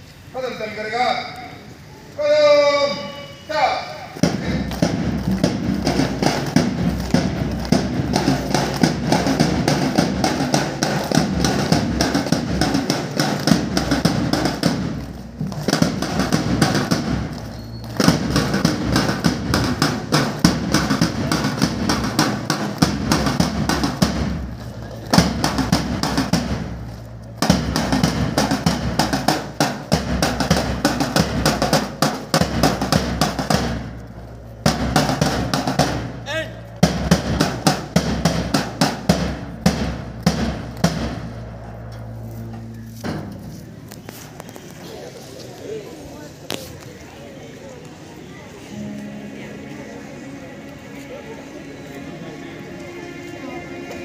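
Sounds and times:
snare drums: 0:02.4 - 0:44.7
bass drum: 0:04.2 - 0:44.5.

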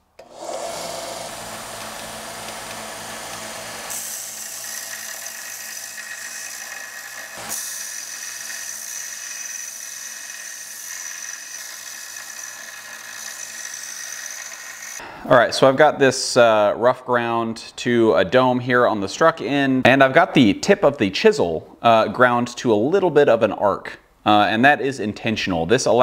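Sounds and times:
belt grinder humming: 0:00.2 - 0:15.0
steel grinding hiss and whine: 0:00.2 - 0:15.0.

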